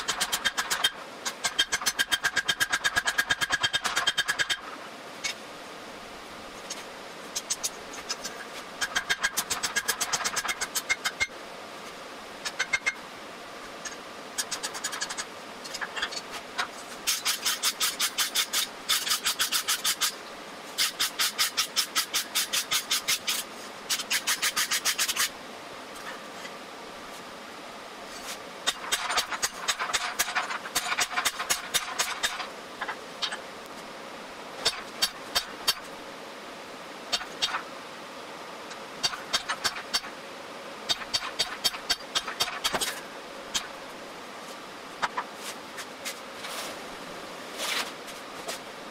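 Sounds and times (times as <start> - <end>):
wire brush scraping steel: 0.0 - 5.4, 6.6 - 11.3, 13.8 - 25.3, 28.1 - 33.4.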